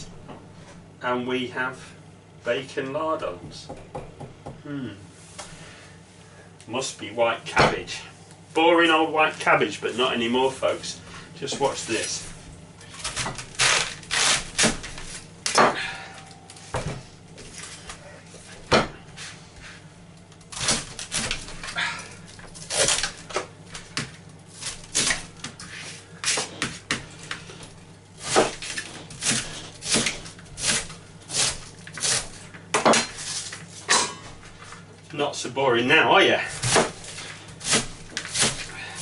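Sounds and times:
knife knocking on chopping board: 3.4 - 4.6
knife crunching through cabbage: 12.8 - 15.3, 20.5 - 27.5, 28.2 - 32.5, 36.5 - 39.0.

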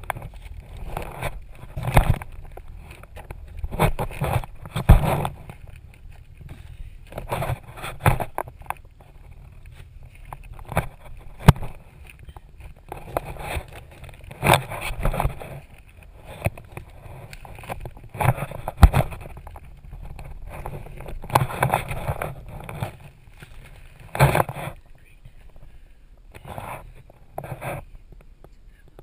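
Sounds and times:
sharp knocks and bumps: 0.0 - 5.7, 7.1 - 9.5.

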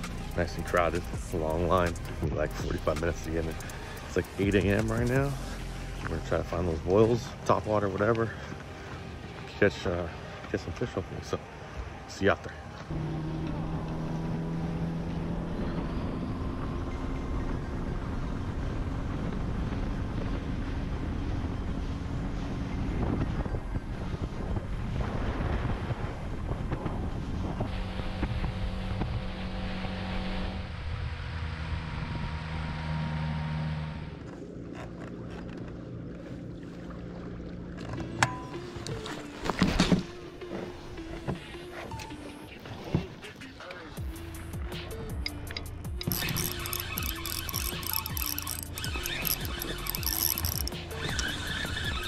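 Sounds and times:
boat motor humming: 0.0 - 25.0, 25.6 - 52.0
wind buffeting microphone: 17.4 - 29.2.

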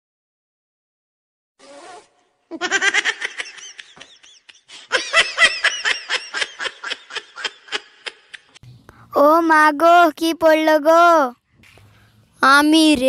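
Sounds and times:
high-pitched laughter: 2.5 - 8.6.

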